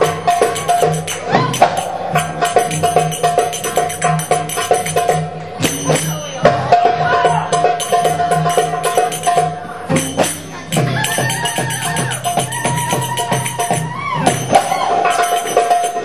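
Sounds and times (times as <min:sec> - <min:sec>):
hand percussion rhythm: 0:00.0 - 0:16.0
held melodic notes: 0:00.0 - 0:16.0.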